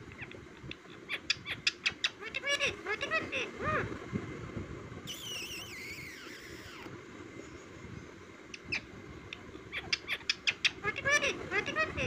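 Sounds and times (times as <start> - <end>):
parakeet warbling call: 1.1 - 3.9, 5.1 - 6.9, 8.6 - 12.0
sharp bird clicks: 9.3 - 10.8.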